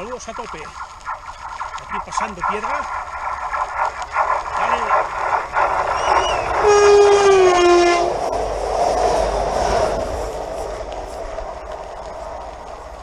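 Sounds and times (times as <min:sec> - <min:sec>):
train rushing and rumbling past: 0:00.0 - 0:13.0
train horn blast: 0:06.6 - 0:08.1.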